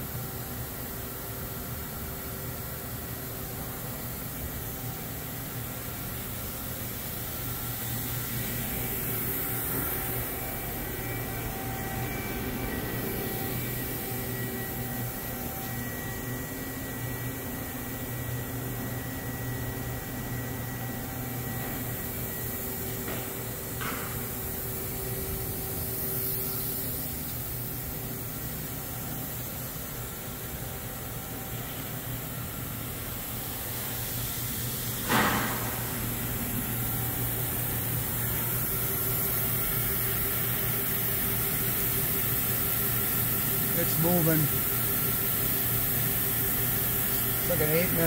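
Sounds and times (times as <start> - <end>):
milling machine humming: 2.4 - 48.0
machine whining tones: 7.4 - 45.3.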